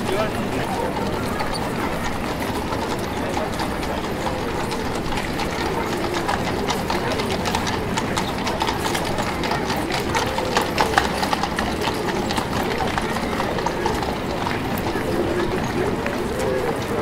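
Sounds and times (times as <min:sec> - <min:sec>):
horse hooves clip-clopping: 0:00.0 - 0:17.0
murmur of voices: 0:00.0 - 0:17.0.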